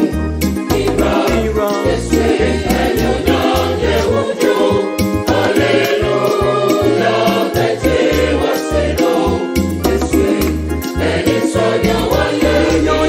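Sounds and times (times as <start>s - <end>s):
mixed choir singing: 0.0s - 13.0s.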